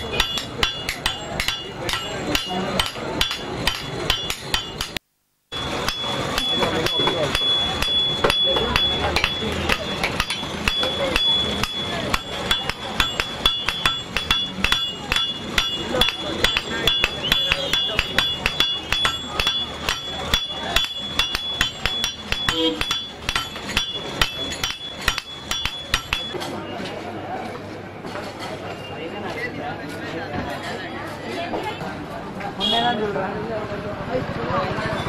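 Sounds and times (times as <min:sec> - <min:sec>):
hammers striking anvil: 0:00.0 - 0:26.5.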